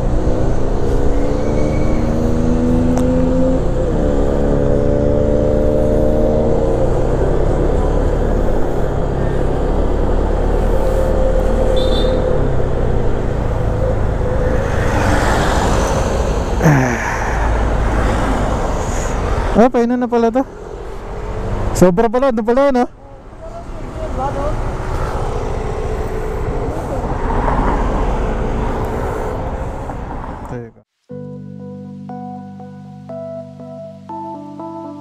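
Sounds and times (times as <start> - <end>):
scooter engine accelerating: 0.0 - 19.3, 23.0 - 29.6
road and wind noise: 0.0 - 31.0.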